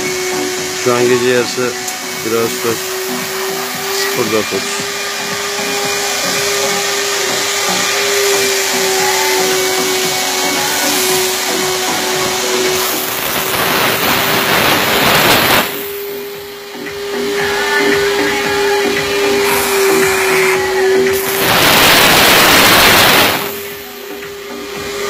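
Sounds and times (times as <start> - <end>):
machine humming: 0.0 - 25.0
steam jet hissing: 0.0 - 25.0.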